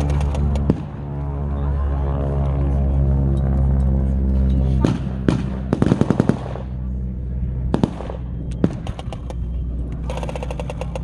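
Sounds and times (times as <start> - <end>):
low engine-like drone: 0.0 - 11.0.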